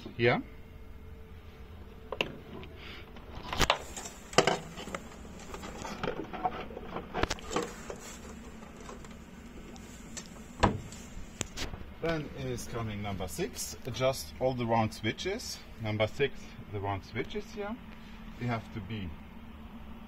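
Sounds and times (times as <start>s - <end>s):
knocks on wooden boards: 10.6s - 10.9s.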